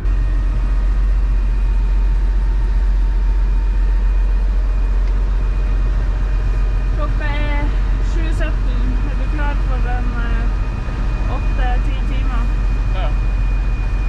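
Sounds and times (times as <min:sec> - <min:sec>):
boat engine drone: 0:00.0 - 0:14.0.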